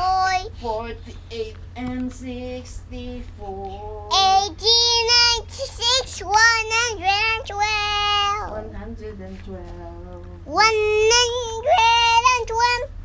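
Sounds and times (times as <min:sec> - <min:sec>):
steady low hum: 0:00.0 - 0:13.0
toddler chanting in a sing-song: 0:03.5 - 0:08.6, 0:10.5 - 0:13.0.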